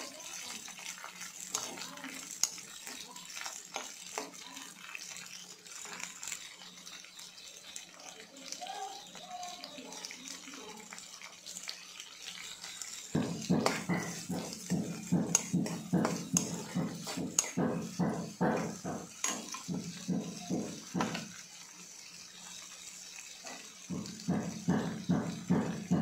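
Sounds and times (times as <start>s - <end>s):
metal spoon scraping a wok: 1.2s - 7.8s, 12.1s - 23.9s.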